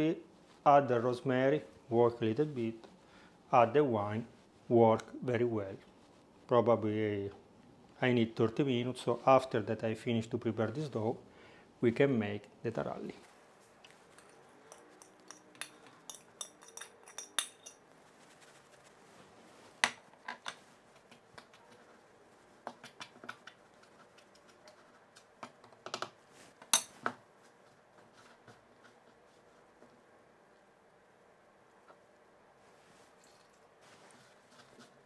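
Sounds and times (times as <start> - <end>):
fork clinking on bowl: 14.2 - 17.8.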